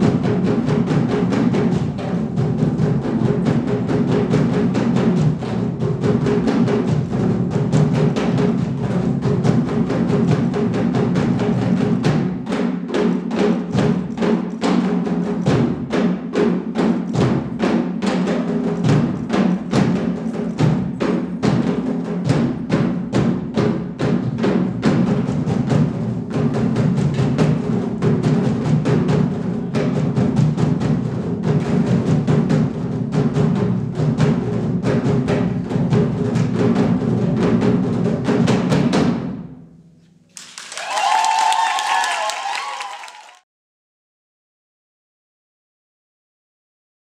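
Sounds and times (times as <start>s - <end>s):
drum ensemble playing: 0.0s - 39.4s, 40.4s - 43.4s
applause: 40.3s - 43.4s.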